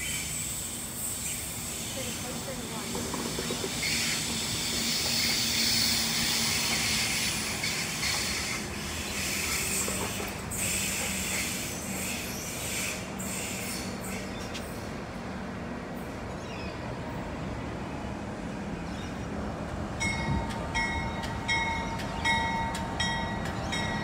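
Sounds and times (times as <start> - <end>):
train noise hiss: 0.0 - 16.4
low locomotive engine hum: 0.0 - 24.0.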